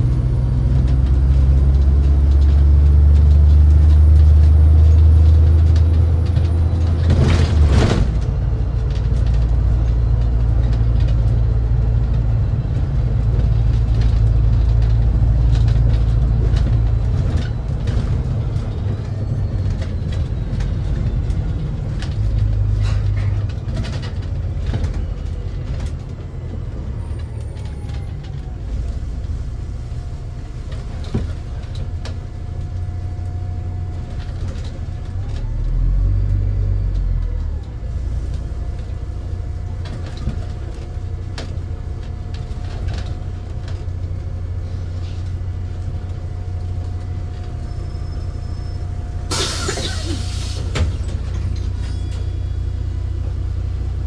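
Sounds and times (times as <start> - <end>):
bus engine rumble: 0.0 - 54.0
rattles and clicks: 0.5 - 30.0, 36.9 - 47.4.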